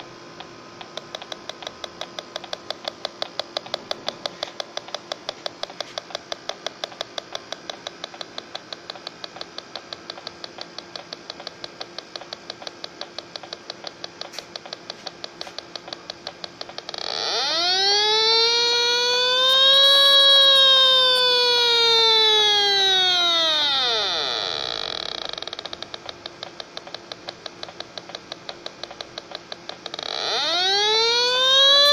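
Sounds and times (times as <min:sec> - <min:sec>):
leak detector beeping rapidly: 0:00.9 - 0:31.9
alarm tone rising and falling: 0:17.0 - 0:24.2, 0:30.0 - 0:31.9.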